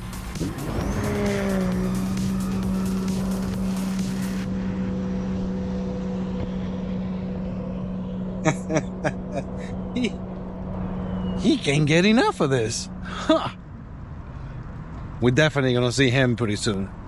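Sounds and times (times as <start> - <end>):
jet ski engine at full throttle: 0.0 - 13.5.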